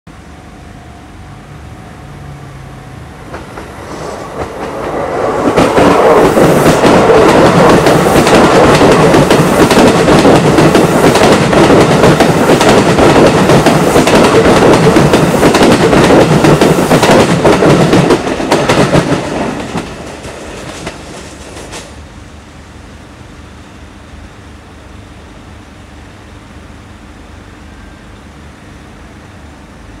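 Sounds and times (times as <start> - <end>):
train wheels clacking over rail joints: 3.3 - 22.0.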